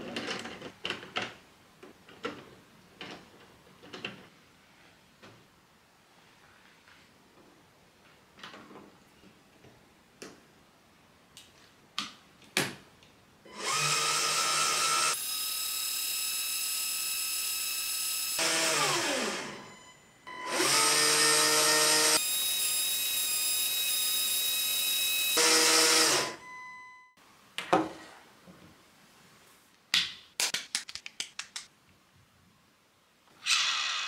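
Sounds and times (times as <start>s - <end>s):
small electric motor whirring: 13.5s - 19.5s.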